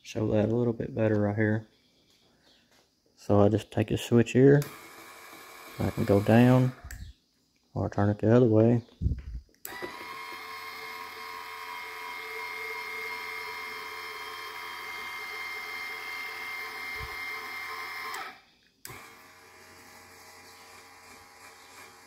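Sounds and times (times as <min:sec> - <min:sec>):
electric actuator whining: 0:04.6 - 0:07.1, 0:09.3 - 0:22.0.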